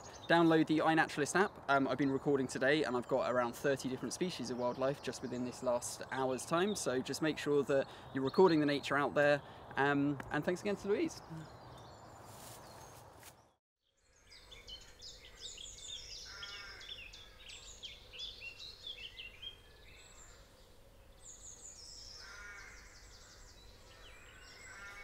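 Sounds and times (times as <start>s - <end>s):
birds singing: 0.0s - 25.0s
low wavering bird calls: 14.2s - 25.0s.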